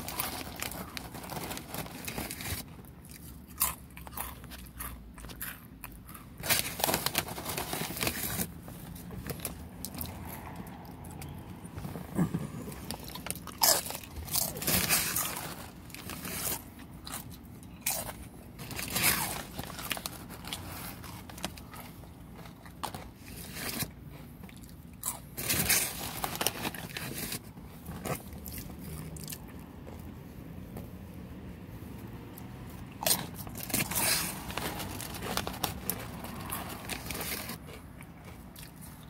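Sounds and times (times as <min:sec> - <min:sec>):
crunching tortilla chips: 0:00.0 - 0:30.0, 0:32.4 - 0:39.0
quiet chewing: 0:24.0 - 0:25.3, 0:35.2 - 0:39.0.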